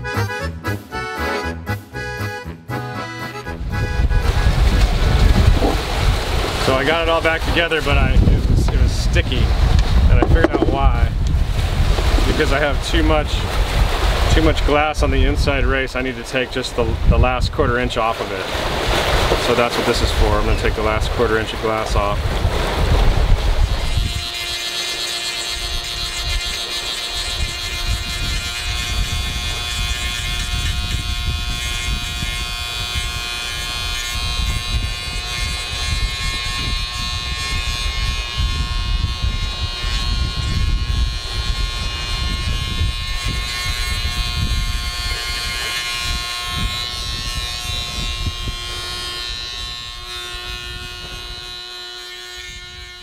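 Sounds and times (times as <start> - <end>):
rotary tool whining: 9.8 - 10.9, 23.6 - 53.0.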